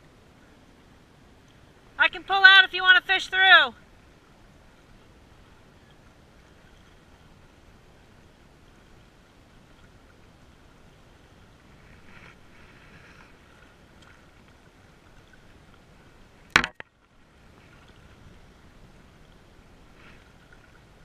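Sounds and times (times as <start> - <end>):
steady wind: 0.0 - 21.0
water lapping at shoreline: 0.0 - 21.0
sharp knock: 16.5 - 16.8.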